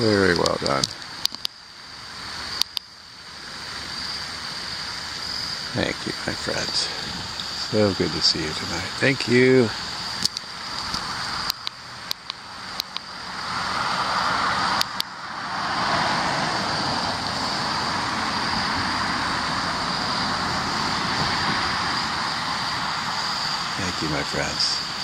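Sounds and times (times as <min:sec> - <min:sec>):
faint high hiss: 0:00.0 - 0:25.0
sharp clicks: 0:00.3 - 0:01.6, 0:02.6 - 0:02.9, 0:10.2 - 0:13.1, 0:14.7 - 0:15.1
outdoor rushing noise: 0:03.4 - 0:25.0.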